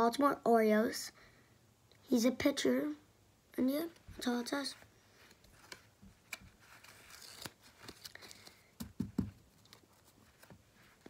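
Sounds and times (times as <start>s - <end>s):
trading cards clicking and rustling: 5.3s - 10.5s.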